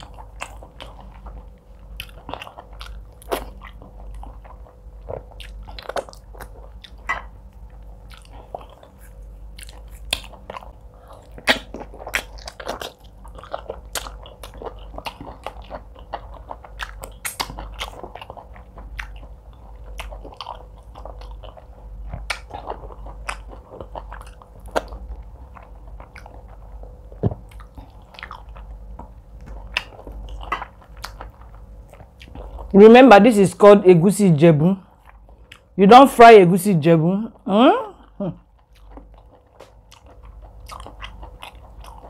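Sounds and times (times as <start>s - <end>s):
person chewing food: 0.0s - 32.8s, 34.9s - 35.8s, 38.0s - 42.0s
mouth clicks and smacks: 16.8s - 18.3s.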